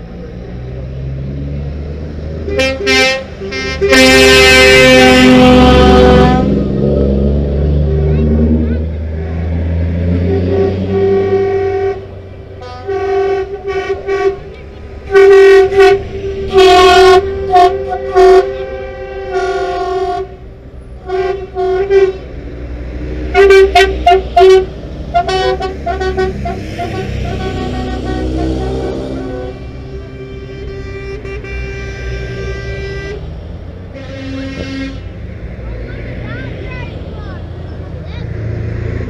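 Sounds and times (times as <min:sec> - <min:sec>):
diesel lorry engines running: 0:00.0 - 0:39.0
truck air horn: 0:02.4 - 0:06.9, 0:10.0 - 0:22.4, 0:23.2 - 0:35.2.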